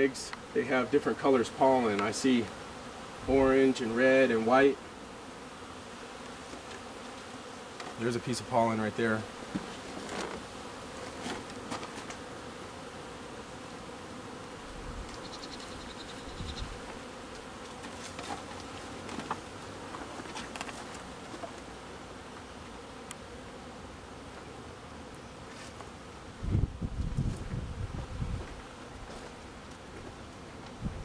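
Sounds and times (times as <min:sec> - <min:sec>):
honeybees buzzing: 0:00.0 - 0:31.0
wooden hive box thump: 0:09.4 - 0:10.5.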